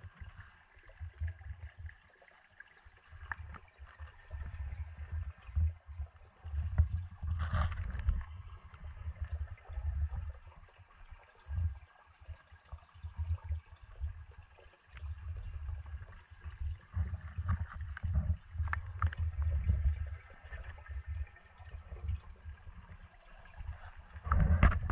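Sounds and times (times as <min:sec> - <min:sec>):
underwater moving water rumble: 0:00.0 - 0:24.9.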